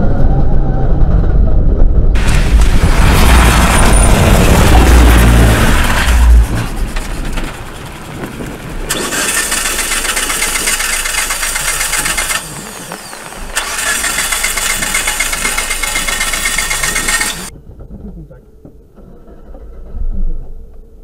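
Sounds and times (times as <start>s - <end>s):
starter motor cranking: 5.2s - 17.5s.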